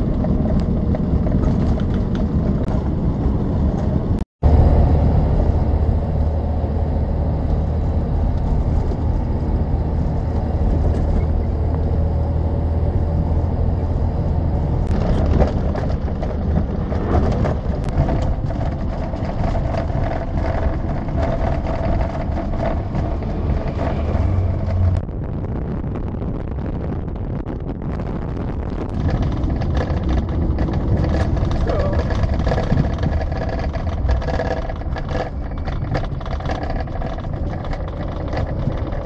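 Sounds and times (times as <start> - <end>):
sharp clicks and knocks: 0.0 - 2.9, 14.8 - 25.1, 28.8 - 39.0
road noise: 0.0 - 39.0
truck engine rumble: 0.0 - 39.0.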